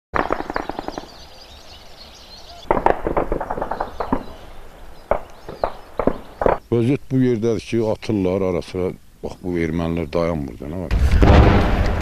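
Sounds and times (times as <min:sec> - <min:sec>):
automatic gunfire bursts: 0:00.2 - 0:01.2, 0:02.7 - 0:04.4, 0:05.1 - 0:06.6
single gunshots: 0:00.2 - 0:01.2, 0:02.6 - 0:04.5, 0:05.1 - 0:06.6, 0:10.9 - 0:12.0.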